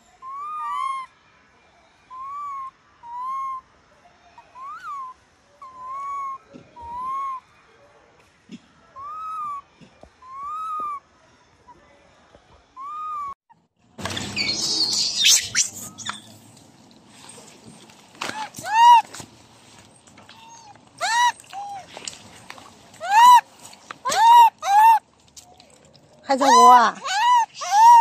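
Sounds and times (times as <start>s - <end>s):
baby monkey cooing: 0.2s - 1.1s, 2.1s - 3.6s, 4.5s - 7.4s, 9.0s - 9.6s, 10.2s - 11.0s, 12.8s - 13.4s, 14.3s - 16.3s, 18.3s - 19.1s, 20.3s - 21.9s, 23.0s - 23.4s, 24.0s - 25.0s, 26.3s - 28.0s.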